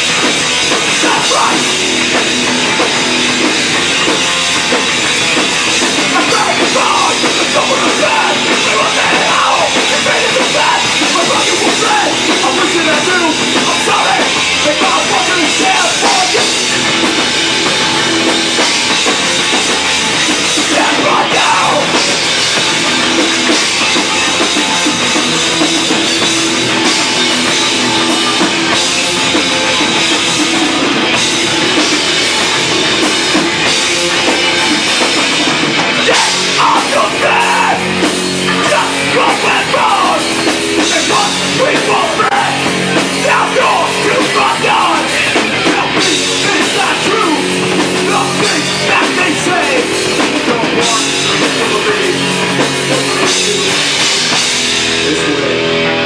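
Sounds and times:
drum kit: 0.0s - 56.0s
electric guitars: 0.0s - 56.0s
vocalist shouting: 36.1s - 37.9s.

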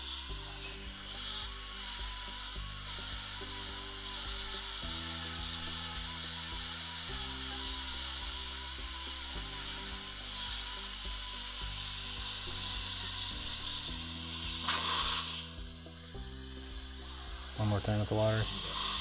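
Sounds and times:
background music: 0.0s - 19.0s
dental handpiece hissing: 0.0s - 19.0s
spray burst: 13.4s - 19.0s.

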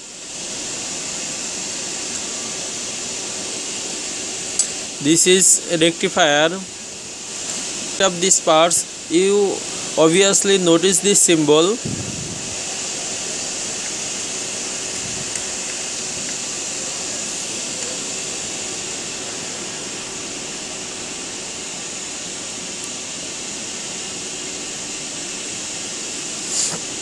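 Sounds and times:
room noise hiss: 0.0s - 27.0s.

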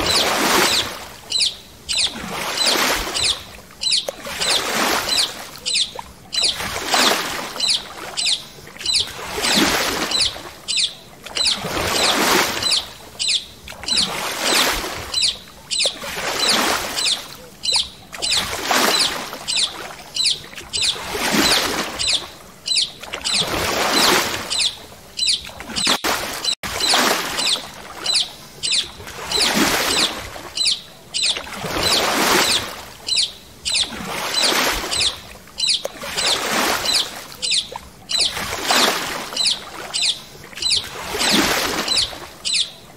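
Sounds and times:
high bird chirps: 0.0s - 6.6s, 7.6s - 14.1s, 15.1s - 38.8s, 39.4s - 42.8s
water swishing: 0.0s - 42.9s.

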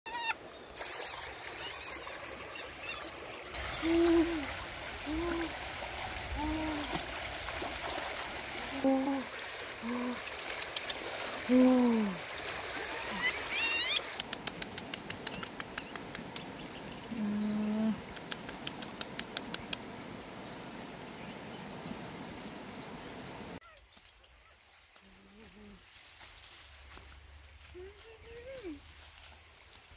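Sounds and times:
young monkeys cooing: 0.1s - 5.5s
water splashing and trickling: 0.1s - 23.6s.

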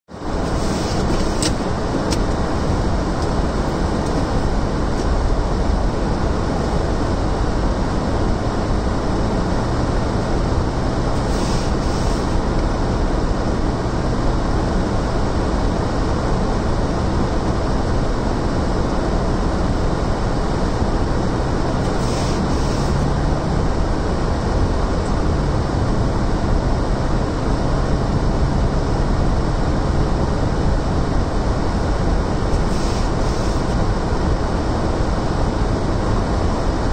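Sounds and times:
tyre and road rumble: 0.1s - 16.3s, 17.5s - 36.9s
low engine hum: 0.1s - 36.9s
short hisses: 11.2s - 12.4s, 22.0s - 23.0s, 32.7s - 33.8s.

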